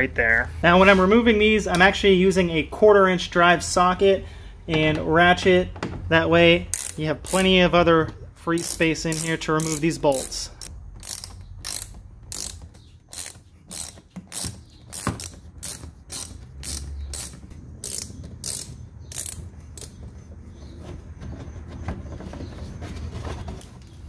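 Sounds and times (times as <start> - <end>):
ratchet clicking: 6.7 - 7.6, 8.6 - 20.0.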